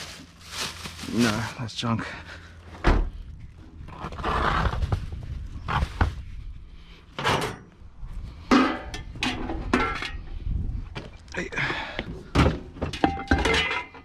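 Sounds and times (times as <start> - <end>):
plastic bags and cloth rustling: 0.0 - 2.2.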